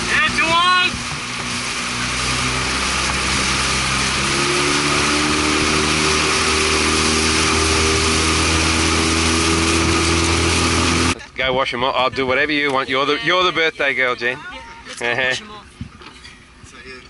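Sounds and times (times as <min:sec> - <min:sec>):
motorboat engine running: 0:00.0 - 0:11.2
rush of wind and water: 0:00.0 - 0:17.0.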